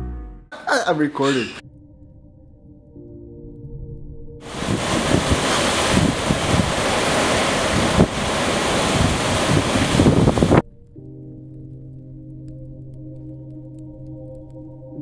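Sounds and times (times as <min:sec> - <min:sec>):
hurricane wind: 0:04.4 - 0:10.6
wind buffeting microphone: 0:04.4 - 0:10.6
heavy rain: 0:04.5 - 0:10.6.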